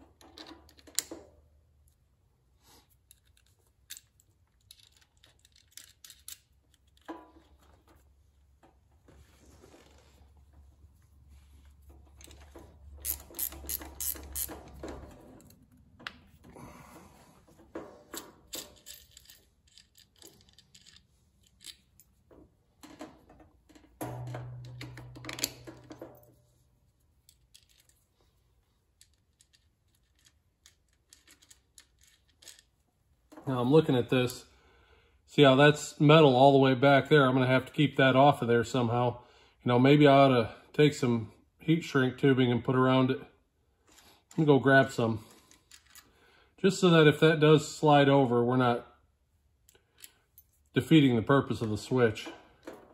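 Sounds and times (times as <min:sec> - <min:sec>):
clicks and rattles of metal parts: 0:00.0 - 0:02.0, 0:02.8 - 0:08.8, 0:11.8 - 0:16.5, 0:17.4 - 0:26.4, 0:27.2 - 0:28.3, 0:28.9 - 0:33.5, 0:45.2 - 0:46.2, 0:51.5 - 0:52.9.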